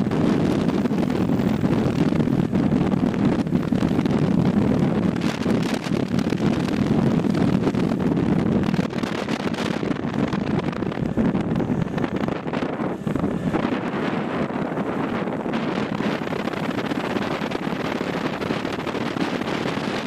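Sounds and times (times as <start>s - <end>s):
motorcycle engine and tyre rumble: 0.0s - 20.0s
wind rushing over microphone: 0.0s - 20.0s.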